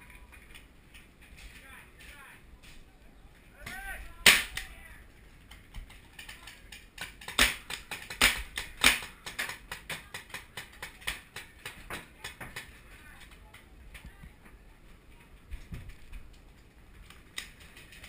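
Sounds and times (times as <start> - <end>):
paintball gun firing: 3.7 - 4.7, 7.0 - 11.8.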